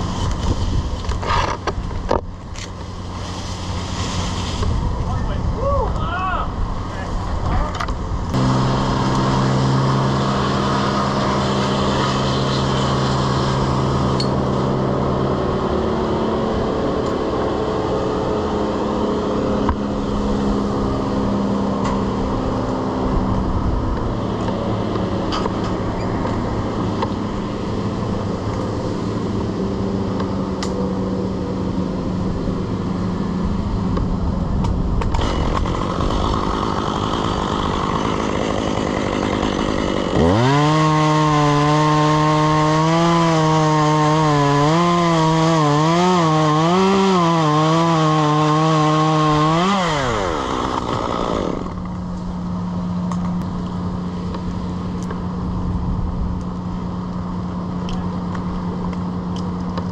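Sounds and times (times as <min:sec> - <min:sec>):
engine running: 0:06.5 - 0:59.9.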